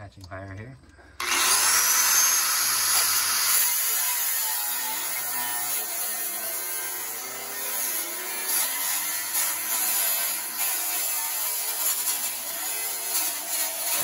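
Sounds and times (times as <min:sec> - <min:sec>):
angle grinder cutting metal: 0:01.2 - 0:14.0.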